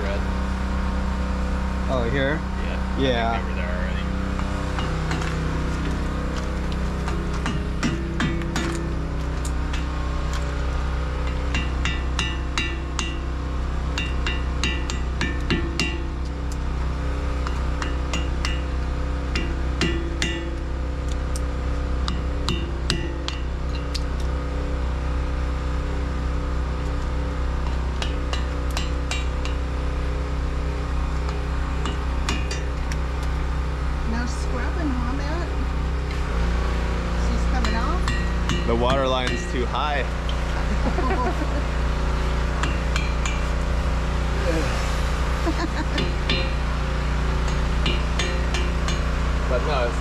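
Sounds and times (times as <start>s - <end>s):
steady low hum: 0.0s - 50.0s
hammer striking metal: 7.1s - 8.9s, 11.3s - 13.3s, 13.9s - 16.2s, 17.4s - 18.8s, 19.4s - 20.6s, 28.0s - 29.6s, 37.6s - 39.6s, 42.6s - 43.5s, 45.9s - 46.7s, 47.3s - 49.2s.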